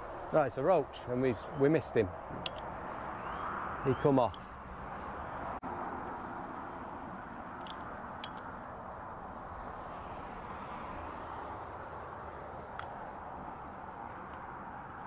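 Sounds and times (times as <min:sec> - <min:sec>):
rushing outdoor background noise: 0:00.0 - 0:15.0.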